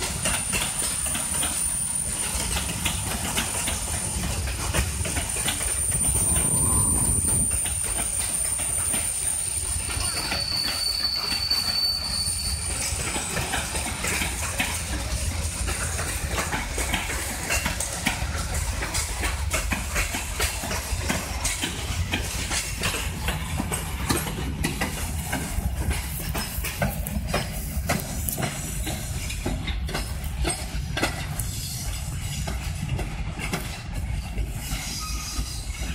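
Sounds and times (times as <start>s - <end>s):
freight train rumbling: 0.0s - 35.9s
wheels clacking over rail joints: 0.0s - 35.9s
high-pitched wheel squeals: 5.5s - 13.4s, 34.6s - 35.9s.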